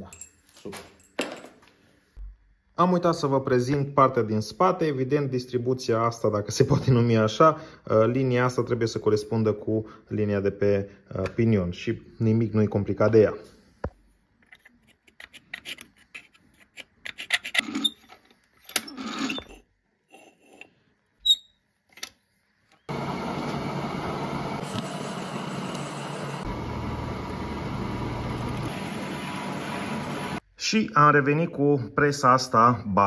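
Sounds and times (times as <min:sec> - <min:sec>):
drilling machine running: 0:22.9 - 0:30.4.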